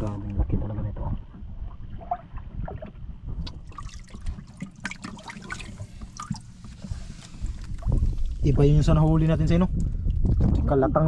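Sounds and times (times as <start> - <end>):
water sloshing and splashing: 0.0 - 8.6
small splashes and drips: 1.6 - 8.4.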